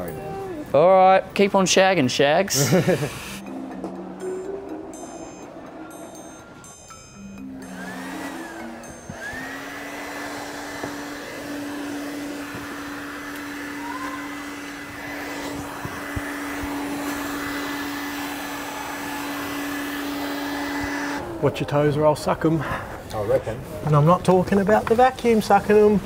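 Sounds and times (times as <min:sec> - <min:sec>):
vacuum cleaner motor running: 0:02.6 - 0:03.4, 0:07.6 - 0:21.7
airflow hiss: 0:07.8 - 0:21.3.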